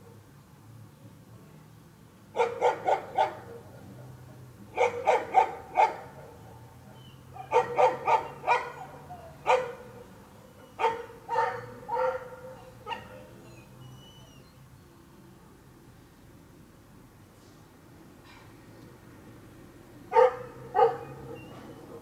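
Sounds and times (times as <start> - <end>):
dog barking: 2.4 - 3.9, 4.7 - 6.6, 7.3 - 10.0, 10.6 - 13.4, 20.1 - 22.0.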